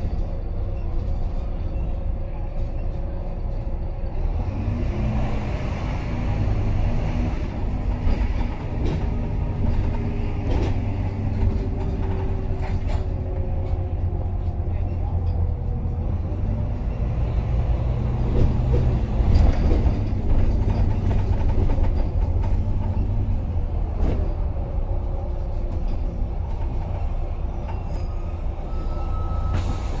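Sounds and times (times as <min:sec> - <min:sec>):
bus diesel engine rumble: 0:00.0 - 0:30.0
road noise: 0:00.0 - 0:30.0
bus body knocks and rattles: 0:07.4 - 0:14.6, 0:17.8 - 0:24.8.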